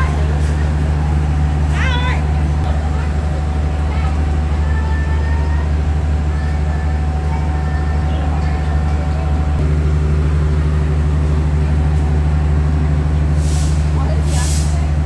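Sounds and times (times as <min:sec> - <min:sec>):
diesel train engine idling: 0:00.0 - 0:15.0.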